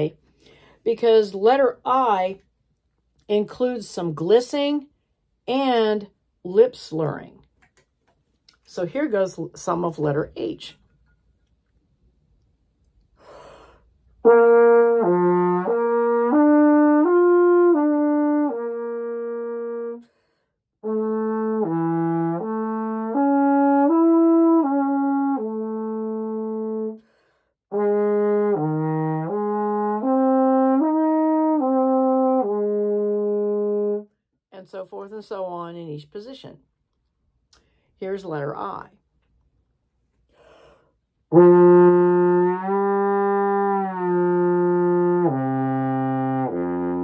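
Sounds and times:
trombone playing slurred notes: 0:14.2 - 0:20.0, 0:20.8 - 0:27.0, 0:27.7 - 0:34.0, 0:41.3 - 0:47.0.

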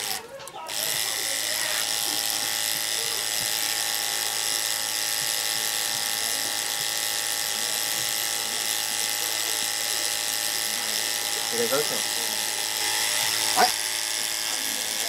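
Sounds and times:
small water pump running: 0:00.0 - 0:15.0.

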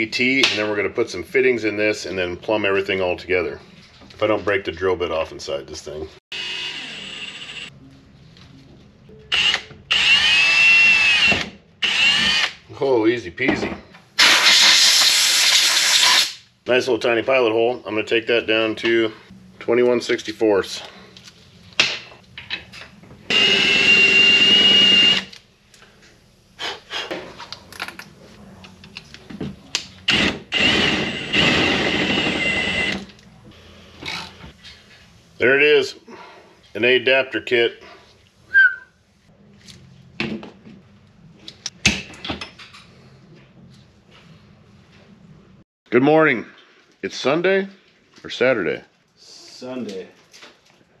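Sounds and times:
handheld drill whining: 0:06.3 - 0:07.7, 0:09.3 - 0:12.6, 0:23.3 - 0:25.4, 0:30.1 - 0:33.1.

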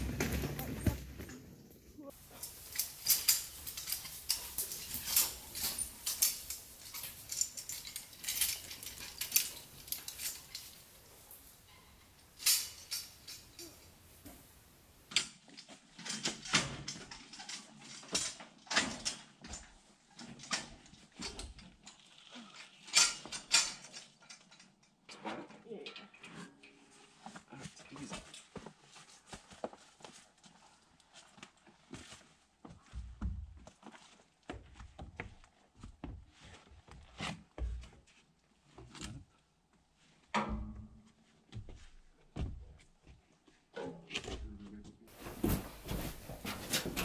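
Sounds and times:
metal stove clanking on trolley: 0:02.2 - 0:15.2, 0:45.1 - 0:47.0.

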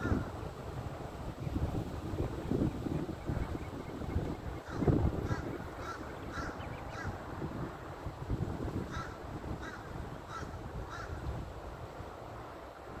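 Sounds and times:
crows cawing: 0:04.7 - 0:07.2, 0:08.9 - 0:11.3.

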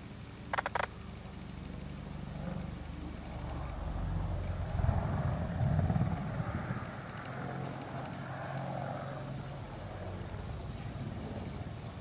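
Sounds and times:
helicopter rotor beat: 0:00.0 - 0:04.0, 0:04.6 - 0:12.0
turbine engine whine: 0:00.0 - 0:12.0.

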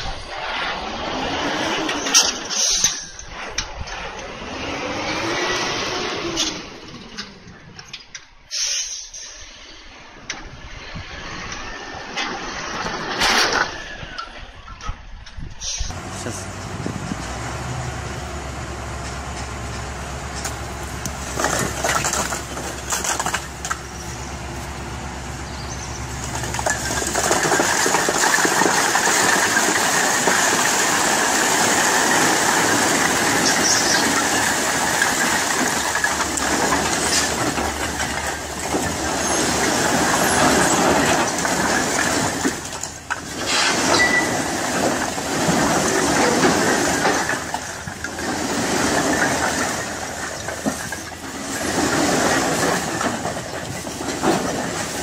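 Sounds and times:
bricks tumbling from dump truck: 0:15.9 - 0:55.0
truck engine running under load: 0:15.9 - 0:55.0.

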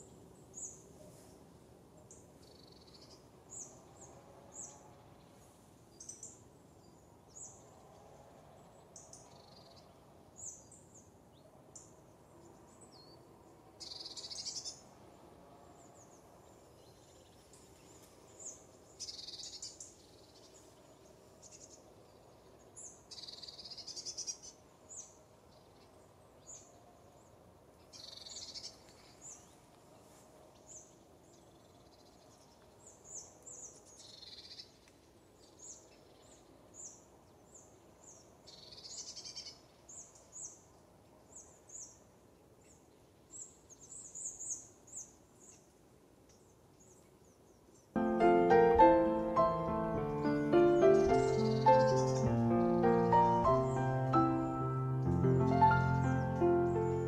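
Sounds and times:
songbird chirps: 0:00.0 - 0:57.0
longer birdsong phrases: 0:47.6 - 0:57.0.

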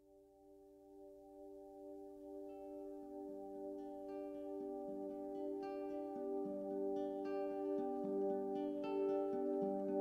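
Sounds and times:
instrumental background music: 0:00.9 - 0:10.0.

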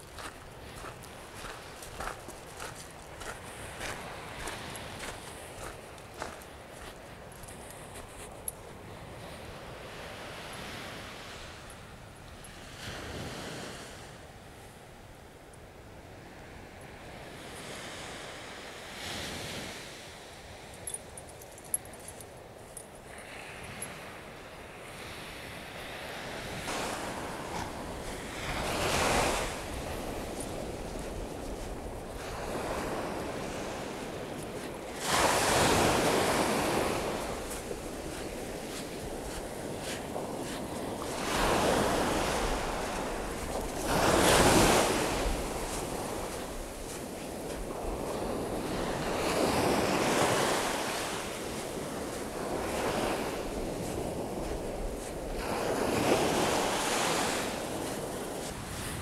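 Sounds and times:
small waves breaking on sand: 0:00.0 - 0:20.8, 0:23.1 - 0:59.0
wind rumble on microphone: 0:22.9 - 0:59.0.

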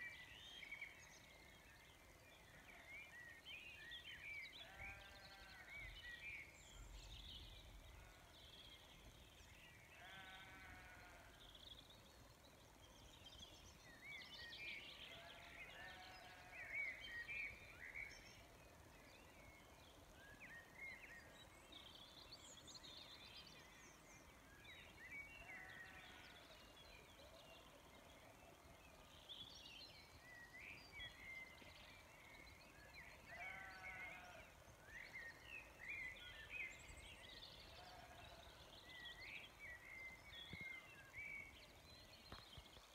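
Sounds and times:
songbirds chirping and trilling: 0:00.0 - 0:42.9
sheep bleating: 0:10.0 - 0:11.2.

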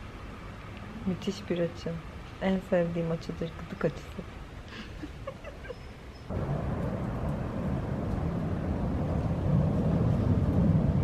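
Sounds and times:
low rumble: 0:06.3 - 0:11.0.

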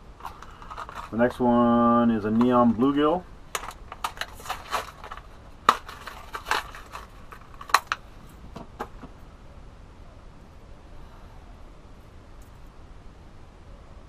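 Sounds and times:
plastic packaging crackling: 0:00.2 - 0:01.4, 0:02.3 - 0:08.1.

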